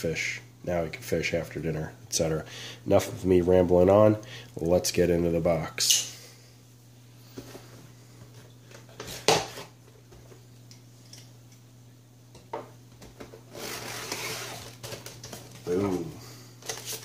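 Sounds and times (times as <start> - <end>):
faint steady hum: 0.0 - 17.0
cardboard scraping: 13.5 - 15.1.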